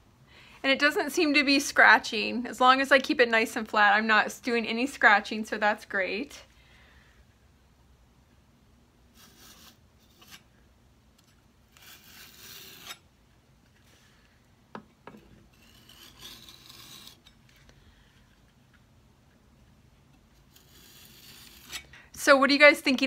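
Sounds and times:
putty knife scraping wood: 9.2 - 10.5, 11.2 - 13.0, 20.4 - 21.9.

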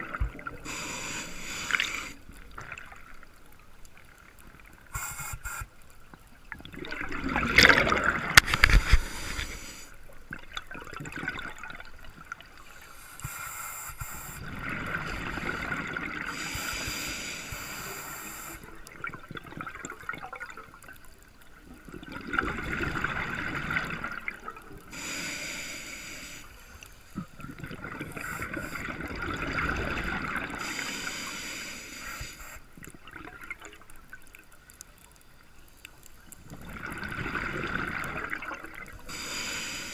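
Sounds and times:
diver breathing through regulator: 0.6 - 2.2, 8.5 - 10.0, 15.4 - 18.7, 24.9 - 27.0, 30.5 - 32.7, 39.1 - 39.9
bubbling gurgles: 6.5 - 9.0, 10.3 - 12.5, 14.4 - 16.6, 18.7 - 21.0, 21.6 - 24.9, 27.2 - 30.8, 36.3 - 39.2.

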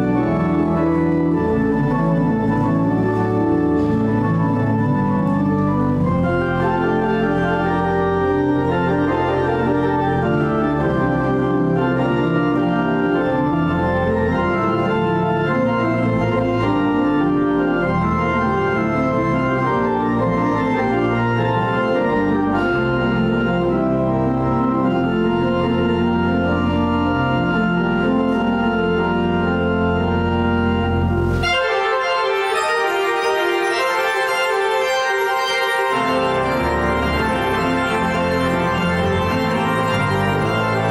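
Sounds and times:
pipe organ playing chords: 0.0 - 40.9.

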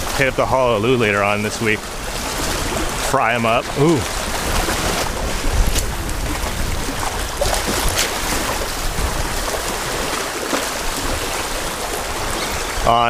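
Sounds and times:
seawater lapping at shore: 0.0 - 13.0.

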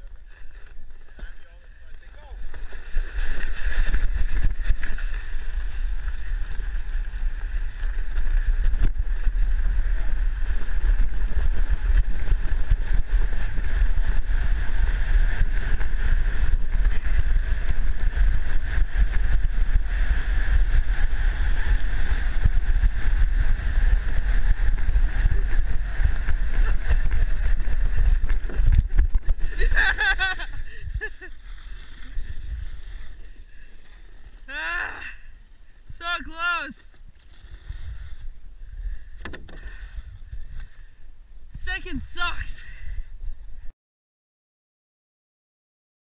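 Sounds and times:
wind buffeting microphone: 0.0 - 31.3, 37.0 - 41.6
sled scraping over snow: 0.0 - 38.4.

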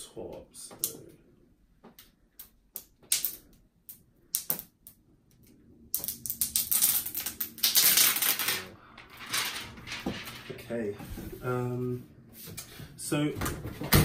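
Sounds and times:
plastic film crinkling as peeled: 6.2 - 9.8.

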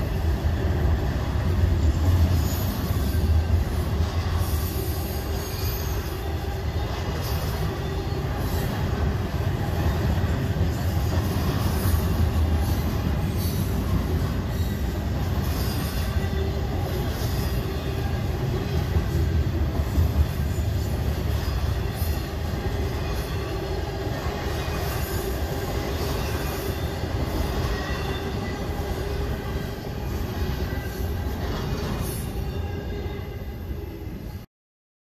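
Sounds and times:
freight train rumbling past: 0.0 - 34.5
high wheel squeal: 4.4 - 6.3, 11.4 - 18.2.

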